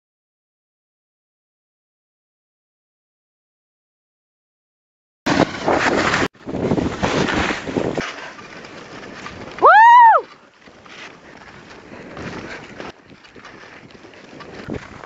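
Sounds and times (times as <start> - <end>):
wind rushing over microphone: 5.3 - 10.3, 11.4 - 15.0.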